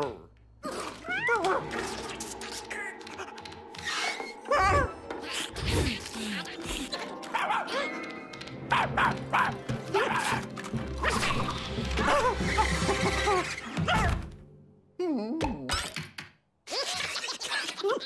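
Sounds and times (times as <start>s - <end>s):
cartoon background music: 0.0s - 15.2s
dog barking and yipping: 7.2s - 7.8s, 8.6s - 10.3s.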